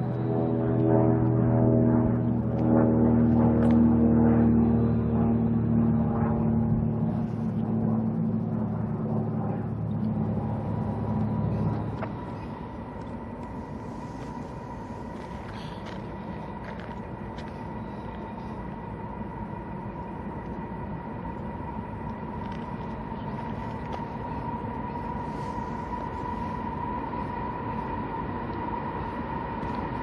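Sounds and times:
diesel engines deep drone: 0.0s - 30.0s
train rolling noise: 9.7s - 30.0s.

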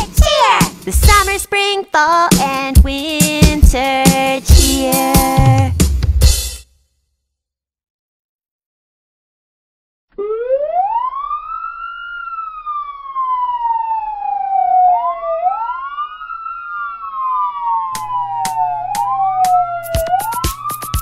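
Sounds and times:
quickening beat of sharp hits: 0.0s - 1.6s, 18.0s - 21.0s
ambulance siren wailing: 10.2s - 21.0s.

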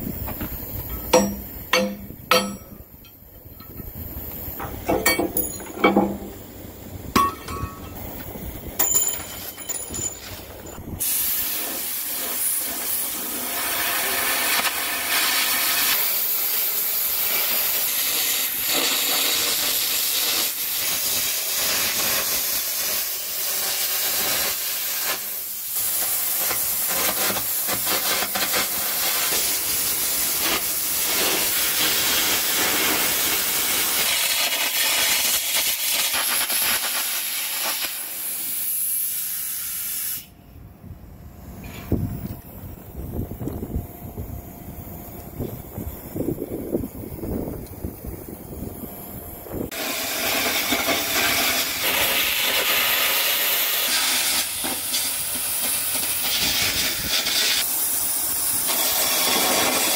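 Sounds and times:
compressed air jet hissing: 11.0s - 40.4s, 49.6s - 59.9s
electric arc crackling: 11.1s - 38.8s, 49.7s - 59.9s.

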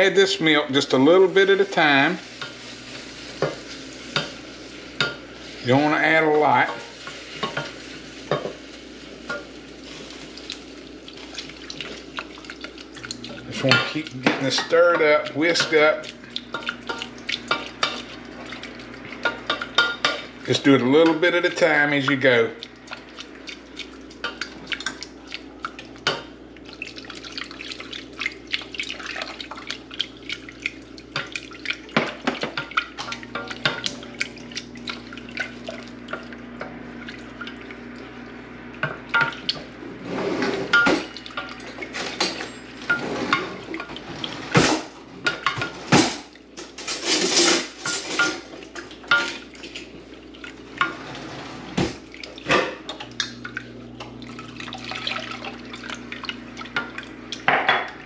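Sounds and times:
liquid splashing: 0.7s - 42.1s, 47.8s - 58.0s
whisk scraping a saucepan: 11.2s - 35.0s, 40.0s - 40.9s.

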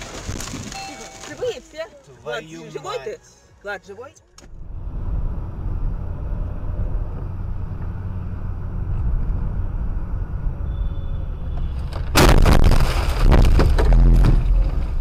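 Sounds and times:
car road and engine rumble: 1.3s - 15.0s
loud crash of impact: 12.0s - 14.9s.

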